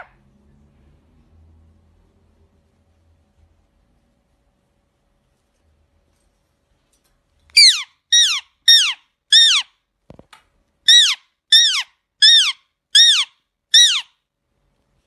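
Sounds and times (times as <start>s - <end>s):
parakeet screeching: 7.6s - 9.7s, 10.9s - 14.2s.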